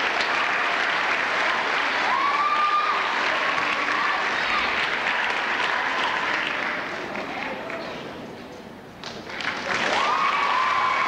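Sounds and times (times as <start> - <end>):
audience applauding: 0.0 - 7.8, 9.2 - 11.0.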